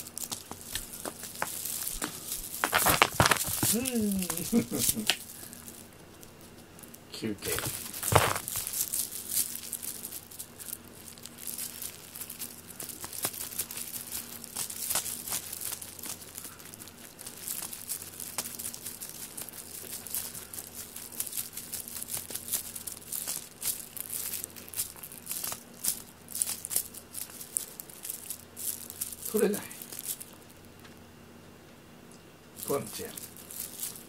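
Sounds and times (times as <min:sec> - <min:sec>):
cat chewing fabric string toy: 0:00.5 - 0:30.5
cord dragging across foam mat: 0:07.5 - 0:08.7.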